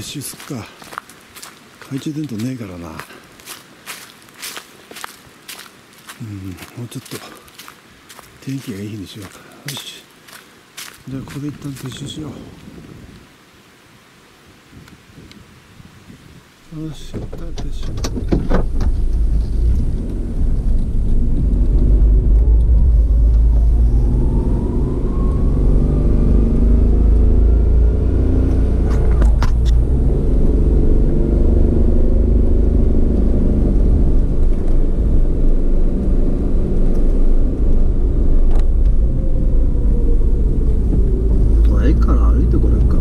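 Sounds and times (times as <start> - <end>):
wind rumble on microphone: 10.9 - 13.4, 14.5 - 43.0
motorcycle engine accelerating: 18.6 - 43.0.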